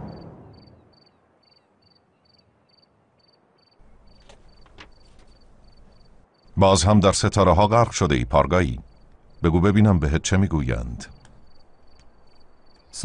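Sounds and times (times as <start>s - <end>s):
crickets chirping: 0.0s - 13.0s
faint low hum: 3.8s - 13.0s.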